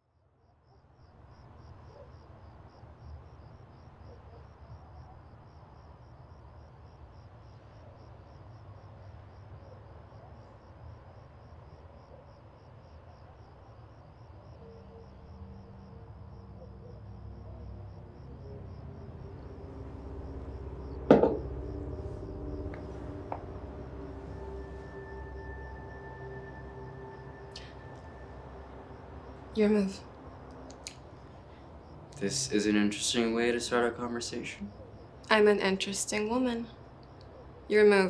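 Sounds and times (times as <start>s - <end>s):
steady low rumble: 17.0s - 35.7s
low held tone: 19.0s - 30.7s.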